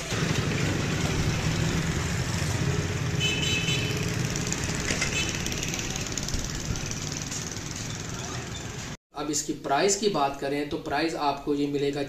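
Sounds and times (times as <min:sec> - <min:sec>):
motorcycle engine running: 0:00.0 - 0:09.0
horn beep: 0:03.2 - 0:04.0.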